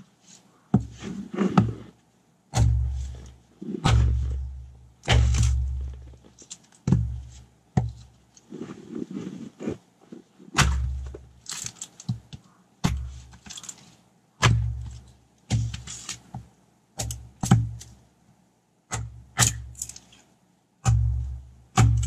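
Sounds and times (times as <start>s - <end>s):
axe splitting firewood: 0.8s - 1.9s, 2.5s - 8.2s, 10.5s - 13.8s, 14.4s - 16.4s, 17.0s - 18.0s, 18.9s - 20.0s, 20.8s - 22.0s.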